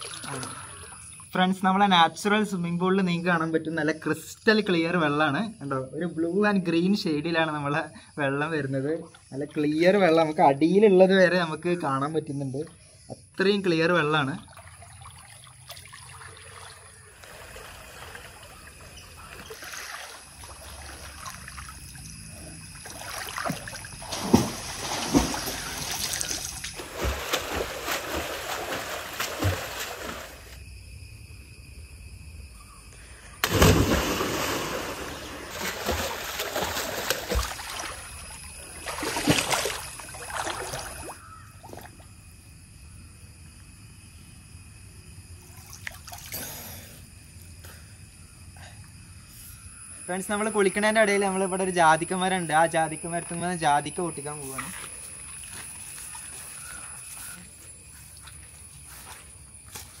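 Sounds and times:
water splashing from swimmer: 14.4 - 30.6, 33.4 - 41.9.

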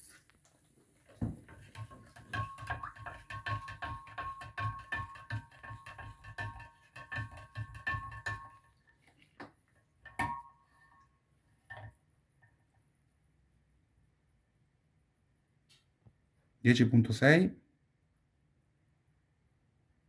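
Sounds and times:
stirrer clinking in glass jar: 1.4 - 9.4, 10.0 - 11.9.

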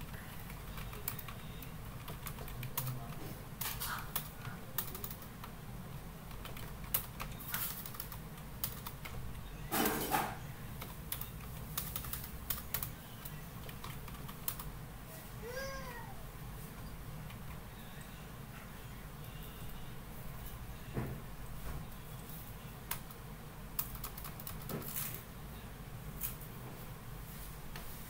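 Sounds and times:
keyboard clatter: 0.0 - 5.6, 6.3 - 12.9.

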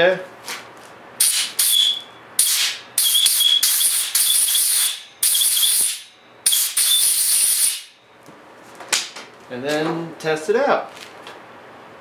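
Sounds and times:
compressed air blow gun blasts: 1.2 - 7.9.

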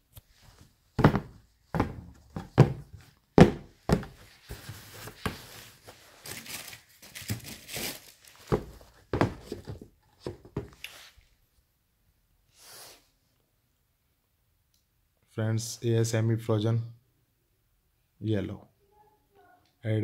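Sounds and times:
dull thumps on cardboard box: 1.0 - 5.4, 8.5 - 10.8
rustling: 3.9 - 11.3.

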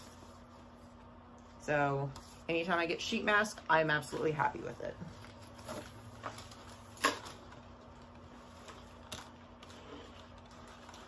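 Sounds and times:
packaging handling: 5.2 - 11.0.

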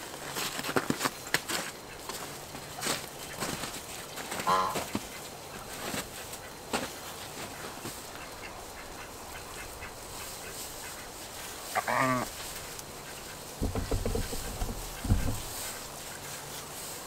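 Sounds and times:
faint rustles: 0.2 - 17.0
waterfowl honking: 4.4 - 5.2, 7.6 - 15.8
low rumbling thuds: 13.6 - 15.9.

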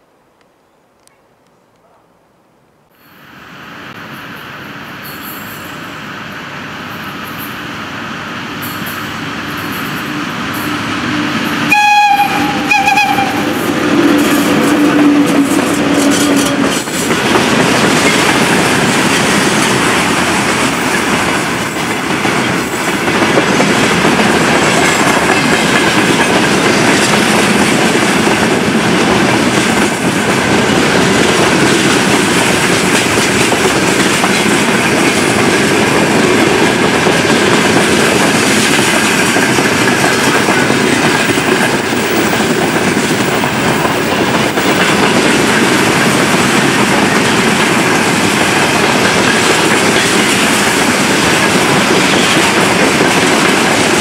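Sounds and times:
train wheels rumbling on rail: 4.0 - 54.0
clickety-clack over rail joints: 8.6 - 54.0
train horn blasts: 10.0 - 15.3.

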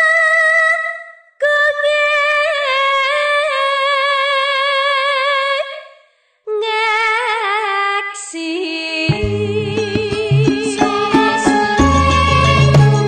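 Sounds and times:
woman singing unaccompanied: 0.0 - 5.9, 6.5 - 13.0.

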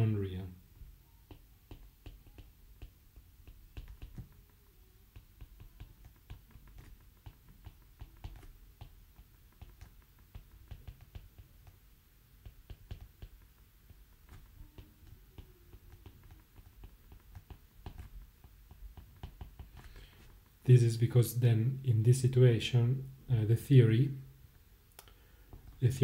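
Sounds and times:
pen scratching on paper: 1.3 - 11.8, 12.4 - 20.5.

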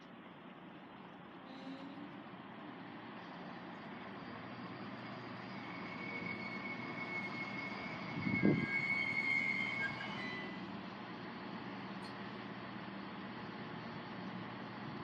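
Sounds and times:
diesel train engines: 0.0 - 15.0
high brake squeal: 1.4 - 2.2, 3.6 - 10.8.

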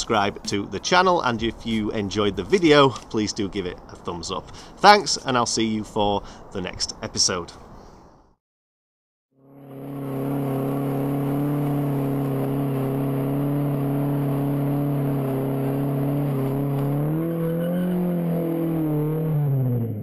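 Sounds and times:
car engine revving high: 9.4 - 20.0.

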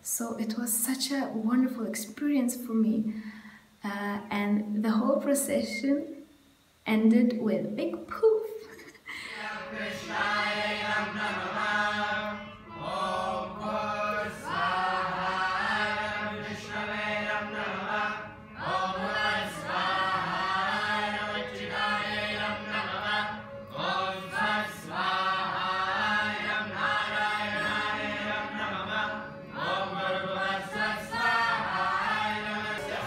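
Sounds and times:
group chanting in unison: 9.2 - 33.0.

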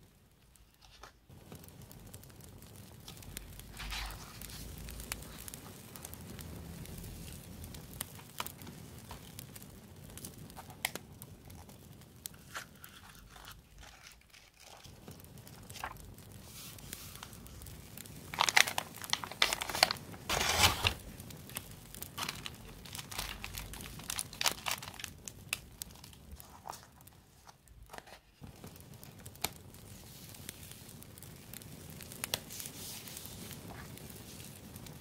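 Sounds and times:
paper rustling and crinkling: 0.6 - 1.3, 3.0 - 6.1, 10.6 - 17.6, 18.3 - 30.8, 32.3 - 34.6.

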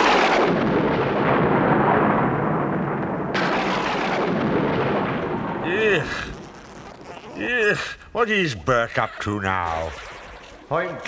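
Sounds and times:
thunder crash: 0.0 - 6.5
thunder rumbling: 0.0 - 6.7.

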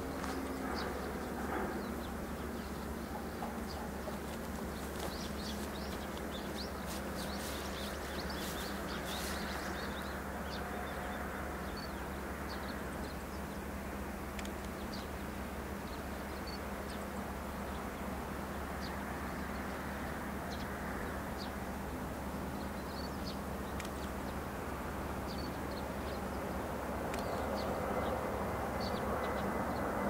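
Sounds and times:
faint jet engine rumble: 0.0 - 30.0.

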